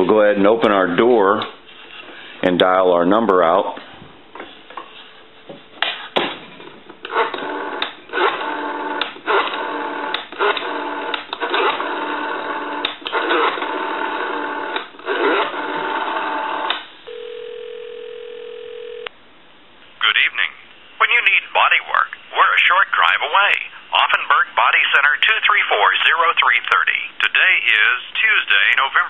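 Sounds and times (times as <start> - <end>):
buzzing telephone line tones: 16.0 - 19.1
telephone ringback tone: 17.1 - 19.1.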